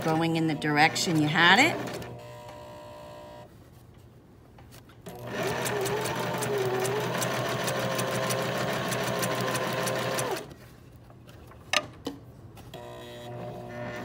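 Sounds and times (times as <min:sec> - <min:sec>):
sewing machine stitching: 0:00.0 - 0:02.3, 0:05.1 - 0:10.5.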